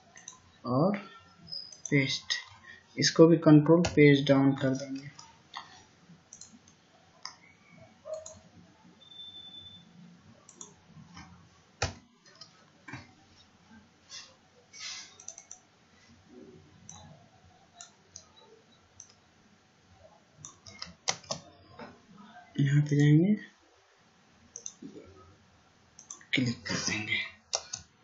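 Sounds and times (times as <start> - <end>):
mouse and keyboard clicks: 6.3 - 7.4, 10.5 - 12.5, 15.1 - 15.6, 20.4 - 21.5, 24.6 - 24.8.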